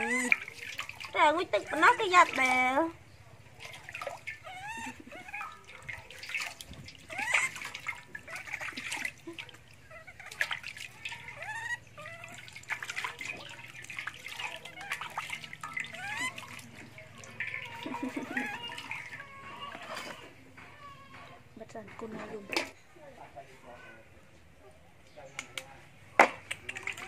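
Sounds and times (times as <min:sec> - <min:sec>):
baby monkey squeaking cries: 0:00.0 - 0:02.6, 0:03.7 - 0:21.5
water splashing in metal basin: 0:00.0 - 0:20.4, 0:26.2 - 0:27.0.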